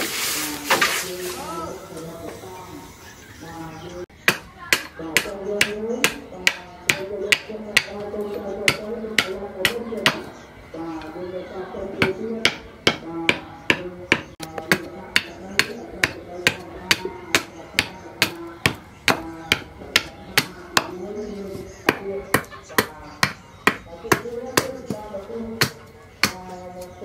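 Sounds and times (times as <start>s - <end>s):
hand axe chopping wood: 12.0s - 20.9s, 25.6s - 26.4s.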